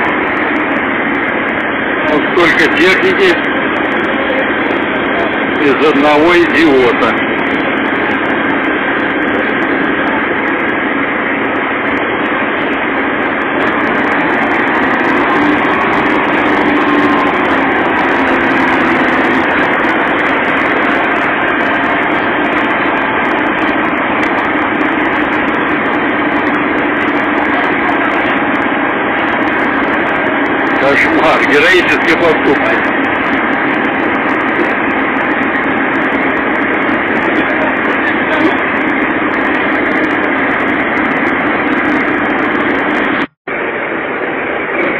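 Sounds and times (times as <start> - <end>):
diesel engines running: 0.0 - 44.9.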